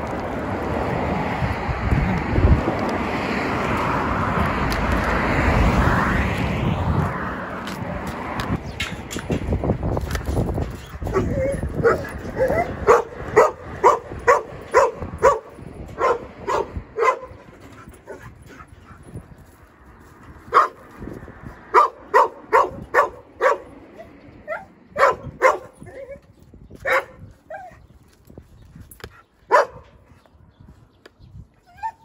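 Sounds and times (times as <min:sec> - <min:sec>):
dogs barking in sharp yips: 0:10.6 - 0:19.0, 0:20.4 - 0:21.1, 0:21.7 - 0:27.9, 0:29.0 - 0:30.0.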